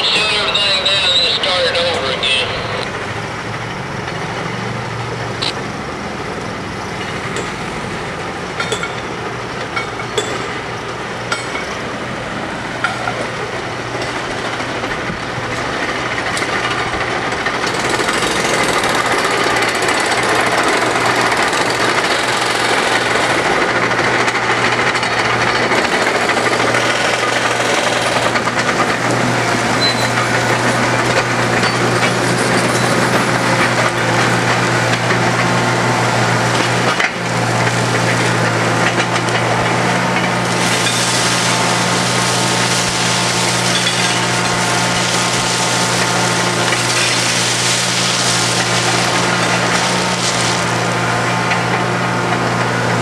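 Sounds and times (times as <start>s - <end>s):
diesel construction machinery running: 0.0s - 53.0s.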